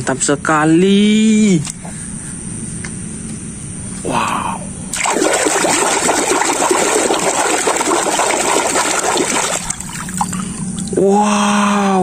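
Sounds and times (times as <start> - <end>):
water sloshing and splashing: 4.9 - 11.0.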